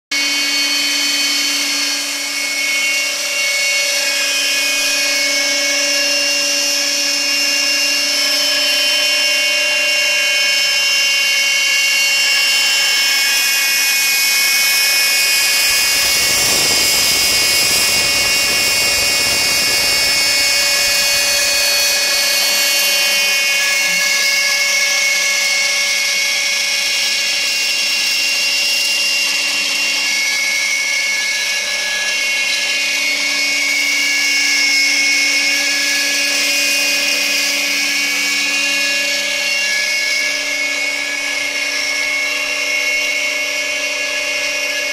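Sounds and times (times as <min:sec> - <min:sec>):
router whining: 0:00.1 - 0:44.9
router bit cutting fibreboard: 0:00.2 - 0:44.9
vacuum drawing air: 0:11.9 - 0:24.4.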